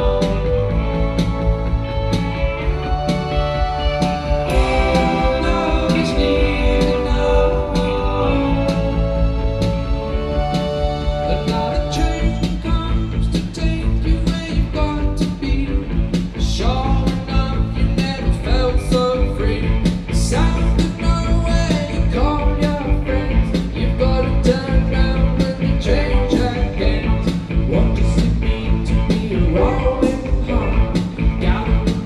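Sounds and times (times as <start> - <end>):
drum beat: 0.0 - 9.0
bass guitar: 0.0 - 32.0
electric guitar: 0.0 - 32.0
keyboard: 0.0 - 32.0.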